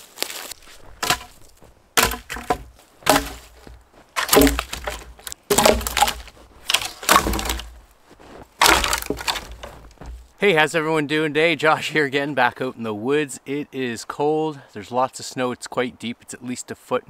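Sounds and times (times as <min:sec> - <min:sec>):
logs knocking on wood: 0:00.8 - 0:10.4.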